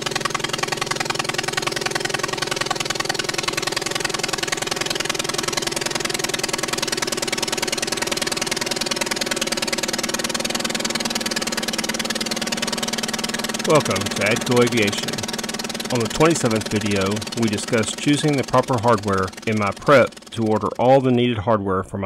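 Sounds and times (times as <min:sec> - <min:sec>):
engine running steadily: 0:00.0 - 0:21.6.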